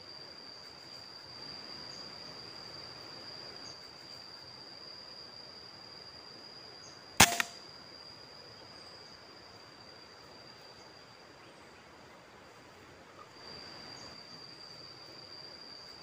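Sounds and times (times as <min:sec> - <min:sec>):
air rifle shot: 0:07.2 - 0:07.6.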